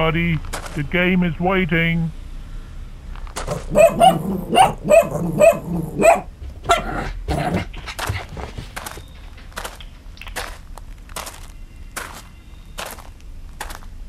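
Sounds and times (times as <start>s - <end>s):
small dog barking: 3.4s - 8.2s.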